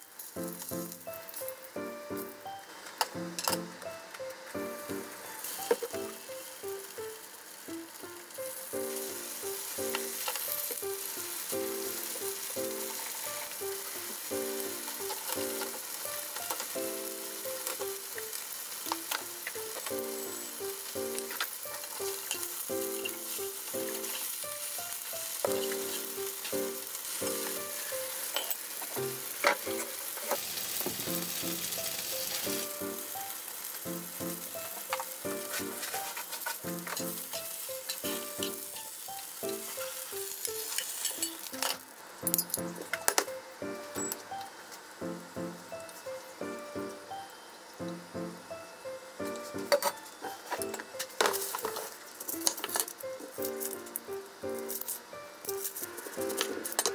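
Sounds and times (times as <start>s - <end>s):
soft background music: 0.0s - 56.9s
tofu sizzling in oil: 0.0s - 56.9s
spatula and chopsticks clicking: 9.8s - 10.9s, 14.8s - 16.8s, 17.4s - 30.4s, 34.3s - 43.4s, 49.6s - 54.0s.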